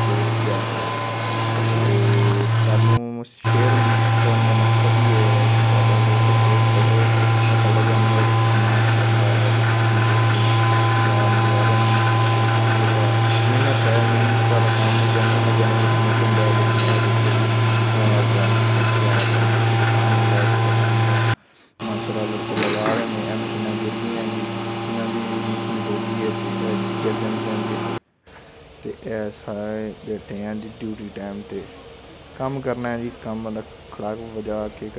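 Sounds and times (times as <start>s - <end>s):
milking machine humming: 0.0s - 28.0s
faint voices: 1.6s - 19.4s.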